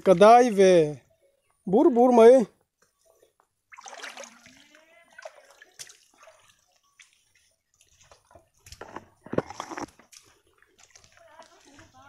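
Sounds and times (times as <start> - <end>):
water splashing and sloshing: 0.0 - 0.9, 3.0 - 12.0
feet wading through water: 3.0 - 12.0.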